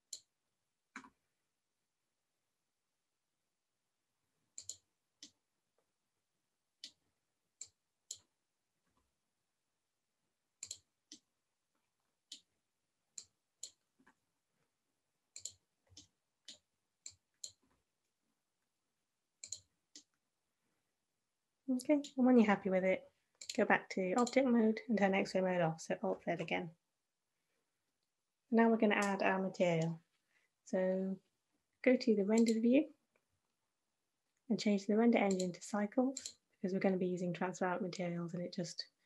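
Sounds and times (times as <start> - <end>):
computer mouse clicking: 4.6 - 5.4, 10.6 - 11.2, 15.4 - 17.6, 19.4 - 20.2, 23.4 - 23.6, 24.2 - 24.4, 32.4 - 32.6, 35.3 - 36.4.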